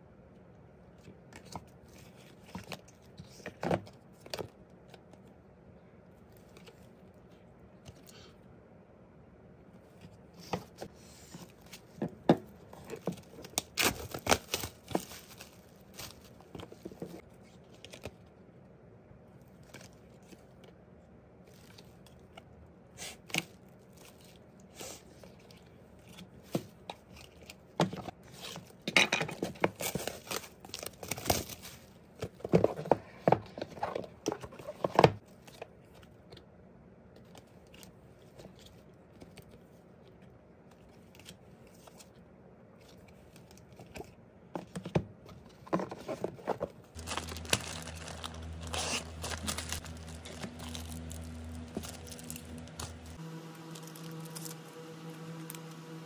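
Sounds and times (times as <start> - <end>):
plastic bag rustling: 12.6 - 17.2, 46.0 - 56.0
packaging rustling and tearing: 12.8 - 18.1, 29.4 - 32.9, 46.0 - 56.0
steady low hum: 46.7 - 56.0.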